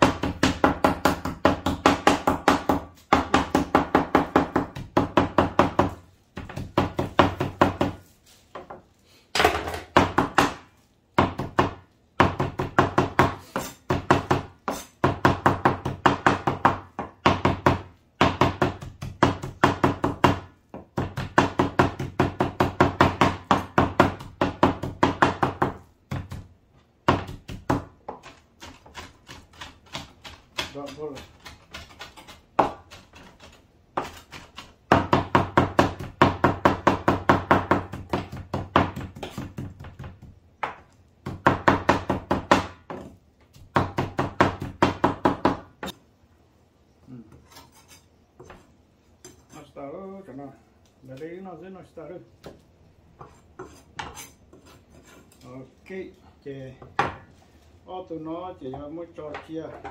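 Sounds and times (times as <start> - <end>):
cleaver chopping on wooden board: 11.2 - 46.0.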